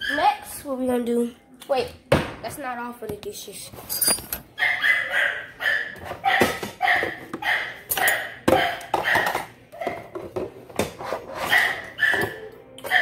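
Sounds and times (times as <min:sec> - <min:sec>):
dishes and utensils clinking: 0:03.7 - 0:04.6, 0:05.8 - 0:13.0.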